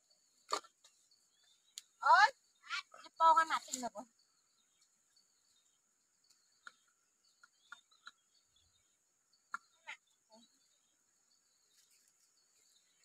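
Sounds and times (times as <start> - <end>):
faint outdoor ambience: 0.0 - 13.0.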